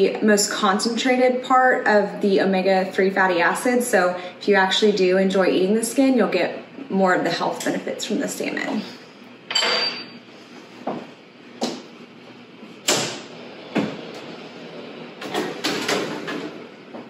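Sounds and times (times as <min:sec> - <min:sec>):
oven door opening: 0:12.8 - 0:16.8.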